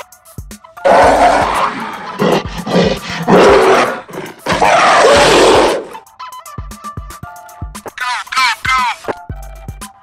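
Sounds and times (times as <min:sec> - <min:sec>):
cartoon animal roar: 0:00.9 - 0:06.0.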